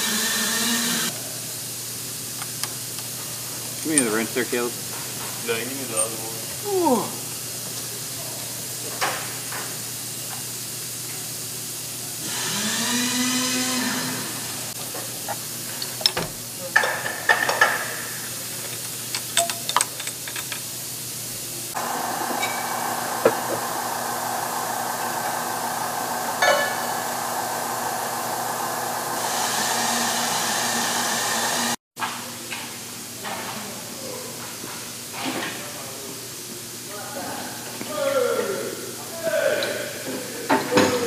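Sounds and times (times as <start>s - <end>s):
metal tools clinking: 3.8s - 4.3s, 18.7s - 20.6s
electric hoist whining: 21.7s - 31.8s.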